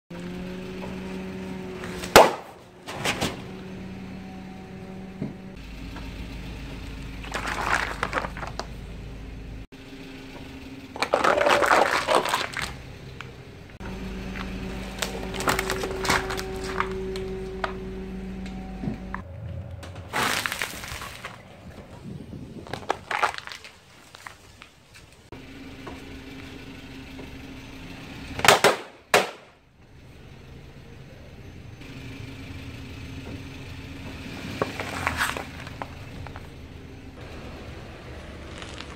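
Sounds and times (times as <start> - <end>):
car engine humming: 0.1 - 38.9
plastic crunching under tyre: 1.8 - 3.5, 6.9 - 8.9, 10.9 - 17.8, 20.0 - 25.3, 28.4 - 29.5, 34.4 - 36.6, 38.0 - 38.9.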